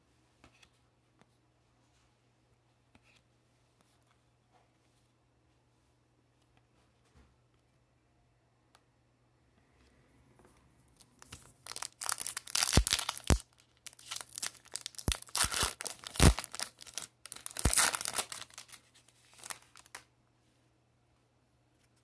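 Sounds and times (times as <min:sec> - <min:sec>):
foil wrapper tearing and crinkling: 0:11.2 - 0:20.0.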